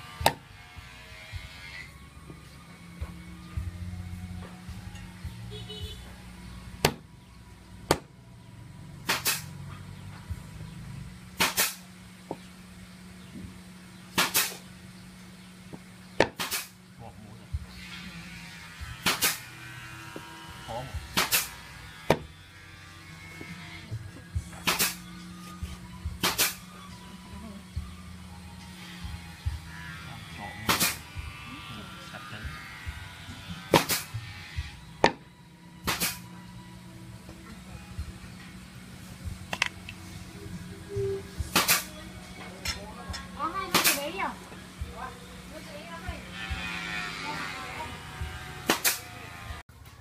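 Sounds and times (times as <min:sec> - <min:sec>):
cleaver chopping meat on wood: 0:00.2 - 0:00.5, 0:06.8 - 0:07.1, 0:07.9 - 0:08.1, 0:15.8 - 0:16.7, 0:22.1 - 0:22.3, 0:35.0 - 0:35.2.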